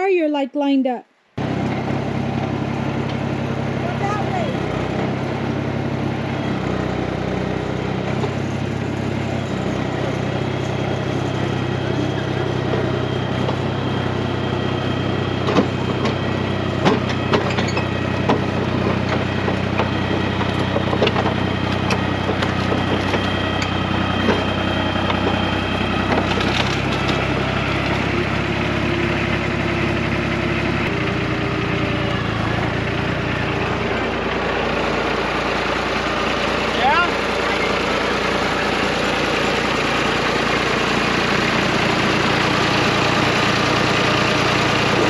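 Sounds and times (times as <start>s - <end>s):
dozer engine running: 1.4s - 45.0s
wood cracking and creaking: 16.9s - 28.1s.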